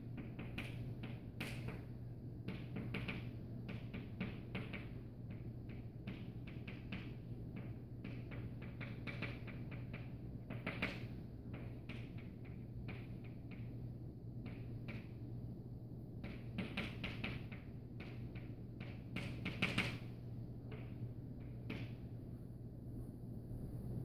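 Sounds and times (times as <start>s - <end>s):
steady low hum: 0.0s - 24.0s
chalk tapping and scratching: 0.2s - 1.9s, 2.5s - 13.7s, 16.2s - 20.1s.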